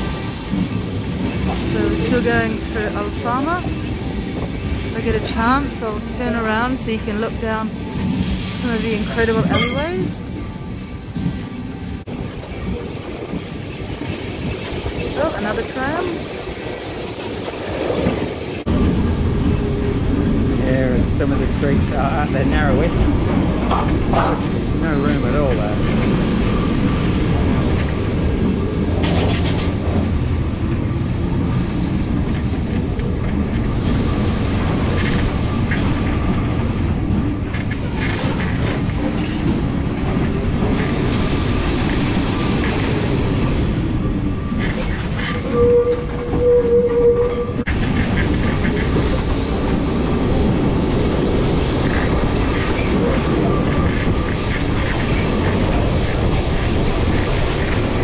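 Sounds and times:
tram motor whine: 0:00.0 - 0:17.3
tram wheels clattering on rails: 0:00.0 - 0:58.0
loud steady tone: 0:01.6 - 0:11.0.

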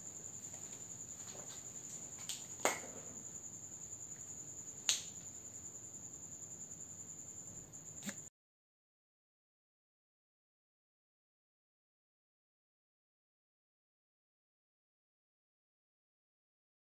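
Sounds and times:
high-pitched insect trill: 0:00.0 - 0:08.3.

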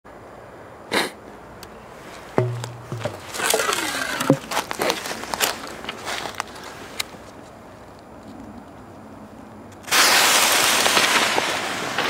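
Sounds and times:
knock against tube: 0:02.4 - 0:03.6
hollow clunk in launch tube: 0:02.4 - 0:04.5.

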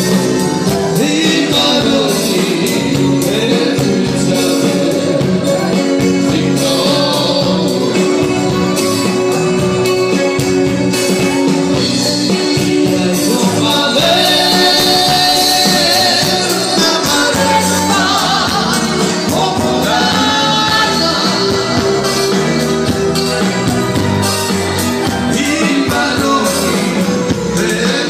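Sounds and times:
drum kit steady beat: 0:00.0 - 0:28.0
electric bass guitar: 0:00.0 - 0:28.0
keyboard: 0:00.0 - 0:28.0
person singing: 0:00.0 - 0:28.0.

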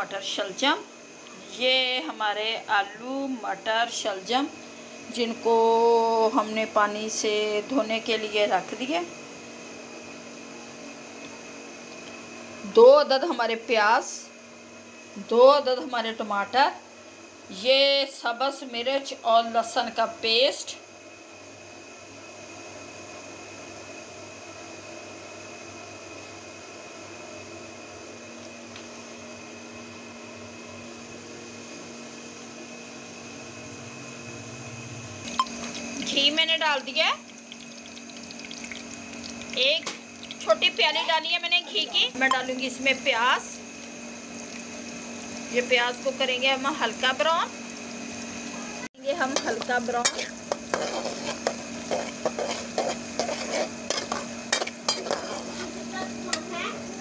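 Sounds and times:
mechanical hum with high whine: 0:00.0 - 0:57.0
onions sizzling in pot: 0:34.8 - 0:57.0
metal spoon scraping pot: 0:50.0 - 0:55.7.

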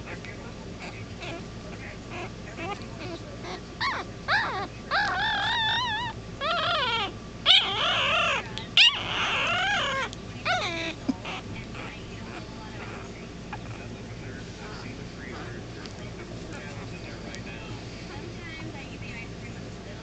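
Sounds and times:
puppy whimpering and crying: 0:00.8 - 0:01.4, 0:02.1 - 0:13.9.

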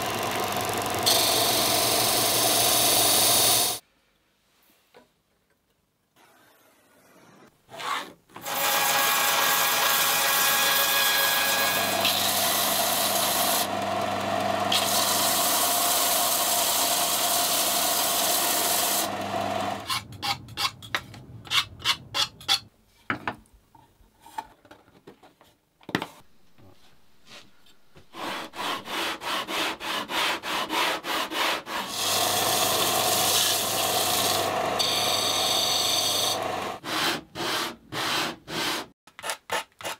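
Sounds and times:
disc sander grinding wood: 0:10.8 - 0:20.5, 0:31.9 - 0:36.8
power tool humming: 0:11.5 - 0:19.9, 0:31.9 - 0:36.8.

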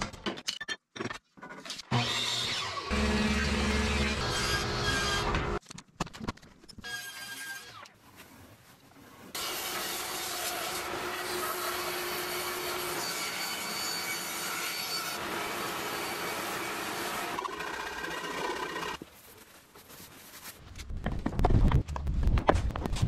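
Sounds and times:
bandsaw cutting wood: 0:01.9 - 0:05.6, 0:09.4 - 0:19.0
shop noise: 0:02.9 - 0:05.6.

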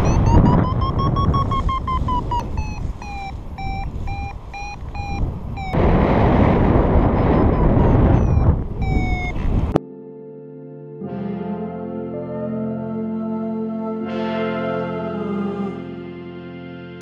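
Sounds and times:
variometer tone and beeps: 0:00.0 - 0:05.8, 0:06.8 - 0:09.8
wind on microphone: 0:00.0 - 0:09.8.

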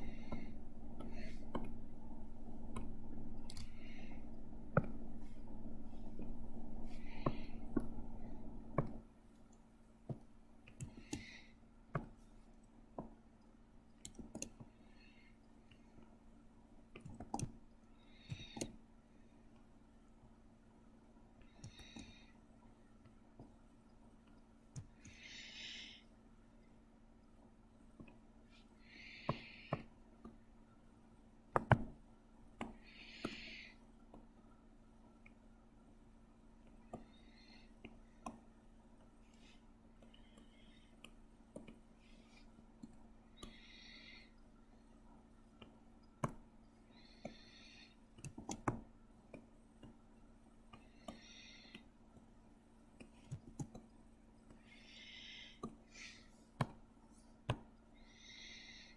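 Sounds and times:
computer mouse and keyboard clicks: 0:02.7 - 0:04.1, 0:06.9 - 0:12.2, 0:14.0 - 0:15.1, 0:16.9 - 0:18.8, 0:21.4 - 0:22.3, 0:47.0 - 0:50.0, 0:53.0 - 0:54.6.

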